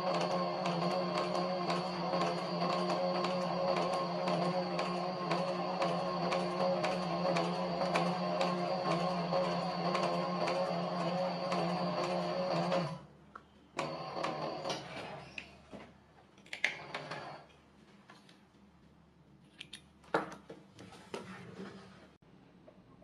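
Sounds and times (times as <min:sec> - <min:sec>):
sewing machine stitching: 0:00.0 - 0:13.0, 0:13.8 - 0:15.3, 0:16.7 - 0:17.5.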